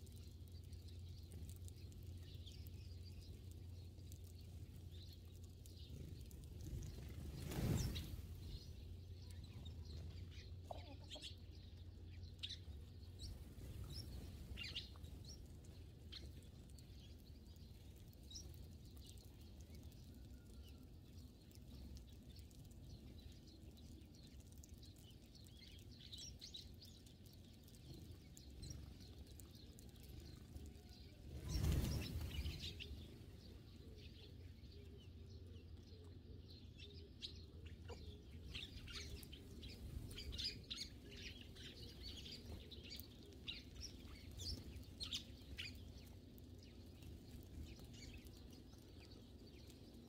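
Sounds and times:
sparrows chirping: 0:00.0 - 0:50.0
rush of wingbeats: 0:07.0 - 0:08.3.

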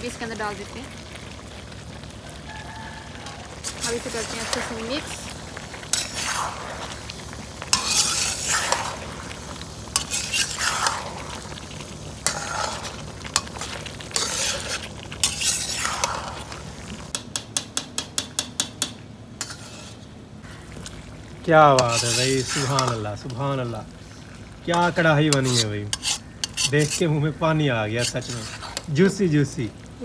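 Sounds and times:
chicken sizzling in oil: 0:00.0 - 0:17.2, 0:19.4 - 0:30.0
metal spatula scraping wok: 0:03.6 - 0:16.6, 0:19.4 - 0:20.6, 0:21.6 - 0:23.8, 0:24.7 - 0:29.2.

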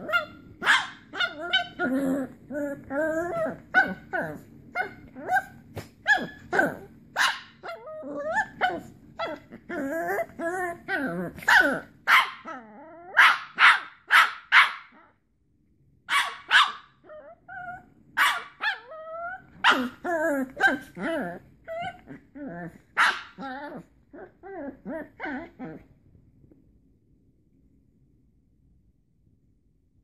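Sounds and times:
small dogs yapping barks: 0:00.0 - 0:01.9, 0:03.3 - 0:09.5, 0:11.4 - 0:15.1, 0:16.1 - 0:22.1, 0:22.9 - 0:23.8
dogs growling: 0:01.2 - 0:04.5, 0:07.7 - 0:13.2, 0:18.8 - 0:25.9.

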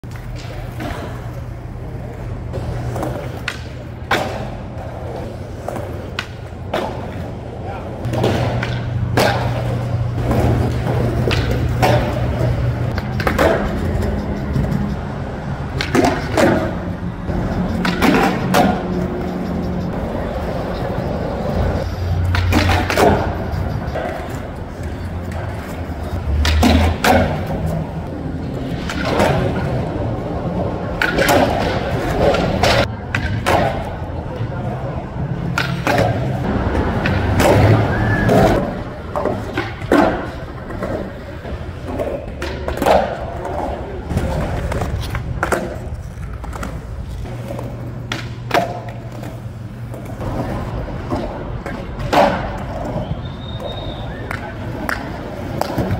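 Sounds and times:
skateboard clacking: 0:00.0 - 0:55.9
skateboard wheels rolling on concrete: 0:00.0 - 0:55.9.

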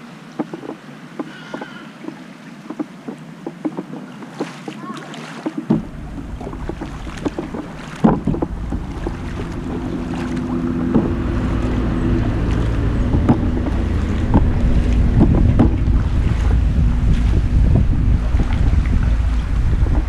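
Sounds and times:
paddle splashing water: 0:00.0 - 0:20.0
water lapping at hull: 0:00.0 - 0:20.0
wind buffeting microphone: 0:05.6 - 0:20.0
low drone: 0:05.7 - 0:20.0.

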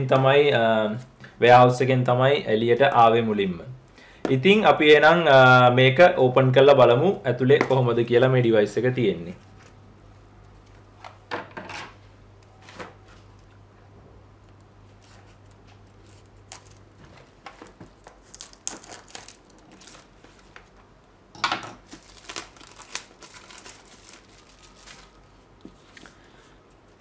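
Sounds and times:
plastic wrap crinkling and tearing: 0:14.9 - 0:20.7, 0:21.8 - 0:26.2
scissors snipping shrink-wrap: 0:15.9 - 0:16.8, 0:17.5 - 0:20.1.

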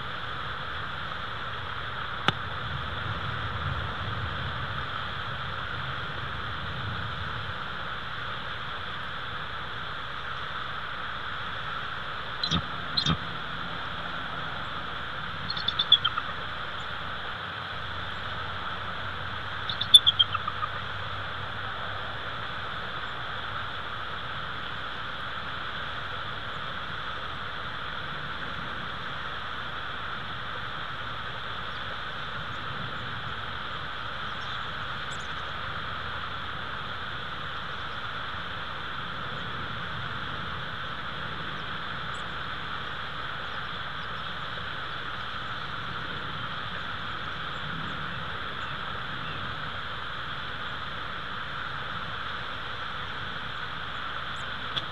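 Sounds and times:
steady hiss: 0:00.0 - 0:54.9
eagle chittering: 0:12.3 - 0:21.5, 0:34.2 - 0:35.6.

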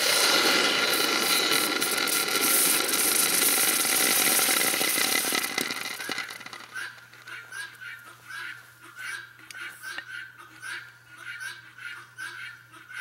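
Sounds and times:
hot metal hissing in water: 0:00.0 - 0:05.9.

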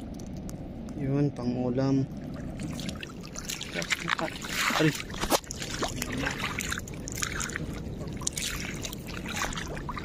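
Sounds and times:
water splashing while wading: 0:02.1 - 0:10.0.

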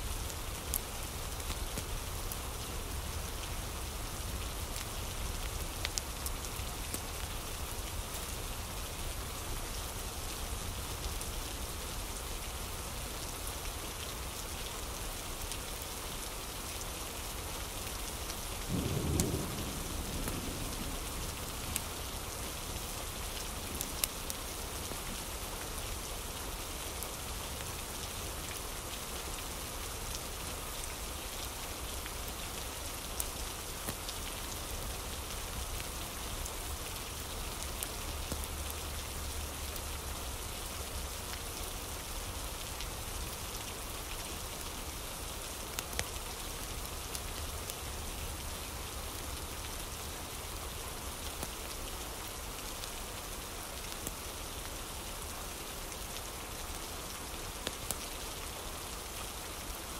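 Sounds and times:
steady rain falling: 0:00.0 - 0:59.9
thunder rumble: 0:18.7 - 0:21.9.

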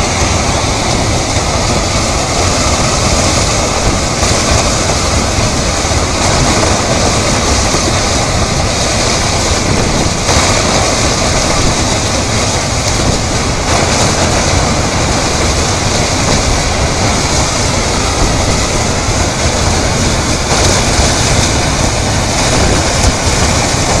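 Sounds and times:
river water rushing: 0:00.0 - 0:24.0.

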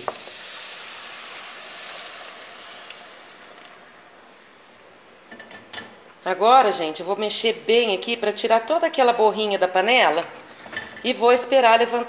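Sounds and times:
water hissing in hot pot: 0:00.0 - 0:04.5.

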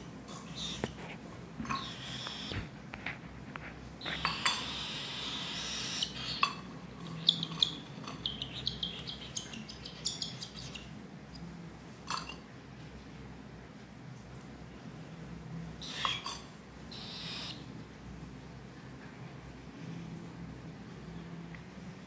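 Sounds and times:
cockatiel calls: 0:01.7 - 0:02.6, 0:04.1 - 0:10.9, 0:15.8 - 0:17.6
metal spoon clinking on steel cup: 0:12.1 - 0:12.4.

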